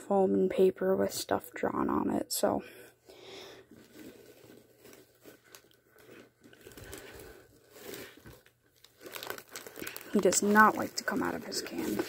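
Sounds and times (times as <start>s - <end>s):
rustling and crinkling handling noise: 2.9s - 12.0s.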